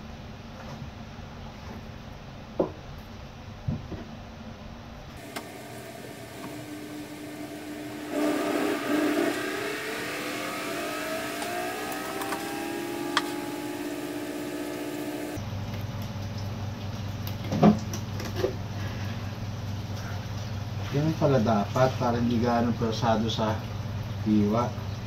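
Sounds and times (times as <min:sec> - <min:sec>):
washing machine motor whine: 0:05.2 - 0:15.4.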